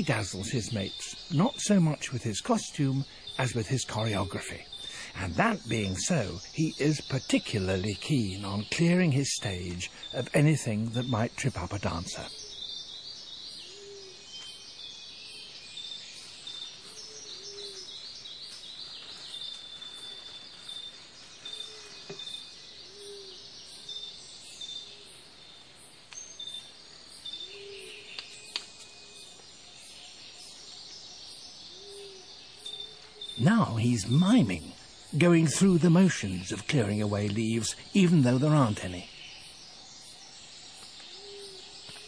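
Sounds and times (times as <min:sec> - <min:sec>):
birds chirping and trilling: 0:00.0 - 0:42.0
insects chirping: 0:00.0 - 0:42.0
low rising and falling call: 0:33.3 - 0:39.1.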